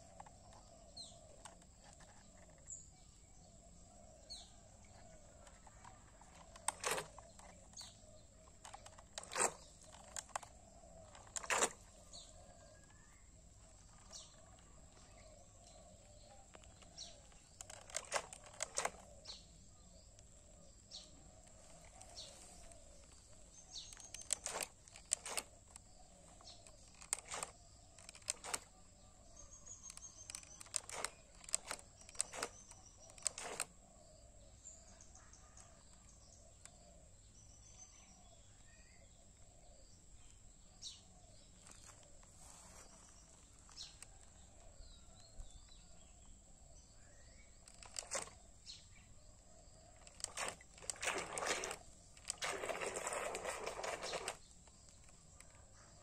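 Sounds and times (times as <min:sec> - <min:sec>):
small birds chirping: 0:00.0 - 0:56.0
sharp clicks: 0:04.8 - 0:12.3, 0:13.9 - 0:19.4, 0:21.4 - 0:28.8, 0:29.7 - 0:33.7, 0:47.6 - 0:48.4, 0:50.0 - 0:55.6.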